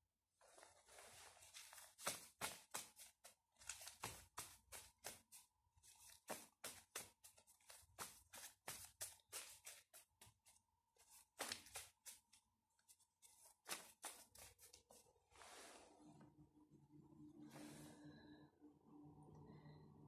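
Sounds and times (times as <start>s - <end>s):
index cards being shuffled: 1.5s - 5.4s, 11.0s - 12.4s.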